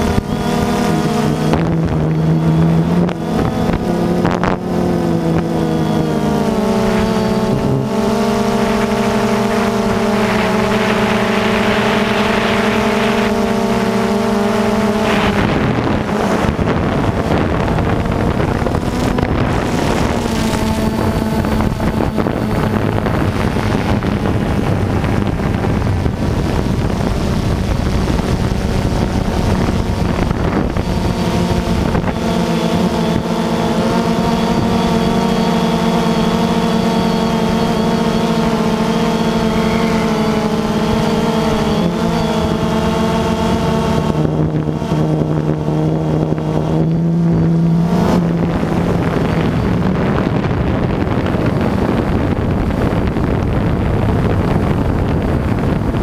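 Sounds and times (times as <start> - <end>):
drone propellers buzzing: 0.0 - 56.0
wind on microphone: 0.0 - 56.0.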